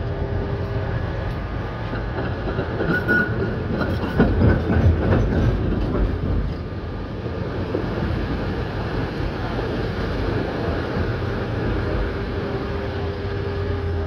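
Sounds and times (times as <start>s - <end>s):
tram running on rails: 0.0s - 14.0s
knocks of tram wheels: 1.8s - 6.7s.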